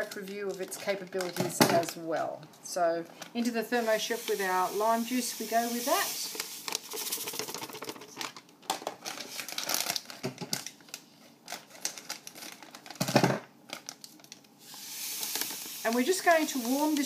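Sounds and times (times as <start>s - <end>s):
sugar grains pouring into bowl: 3.8s - 7.4s, 14.7s - 17.0s.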